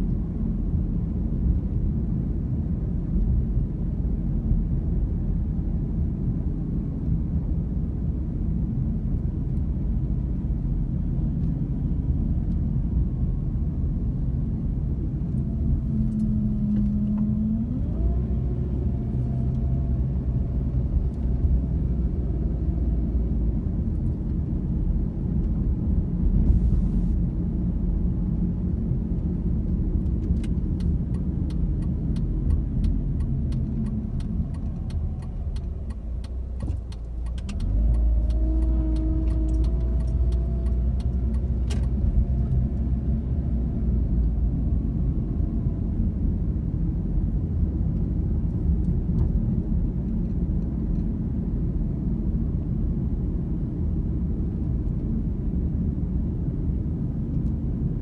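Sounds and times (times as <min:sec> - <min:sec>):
car engine and tyre rumble: 0:00.0 - 0:58.0
light ticks: 0:30.0 - 0:42.9.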